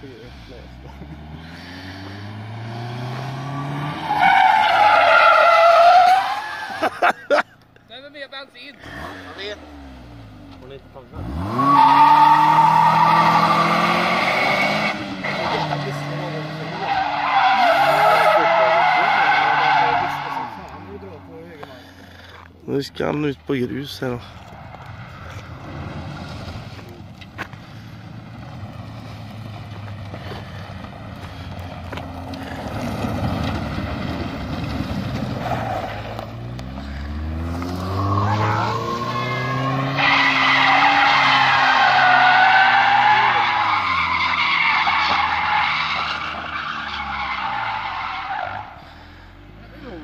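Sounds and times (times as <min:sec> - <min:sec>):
car engine revving: 0:00.0 - 0:06.2, 0:08.8 - 0:22.5, 0:23.8 - 0:50.0
tyre squeal: 0:03.5 - 0:07.1, 0:16.8 - 0:20.9, 0:37.9 - 0:48.8.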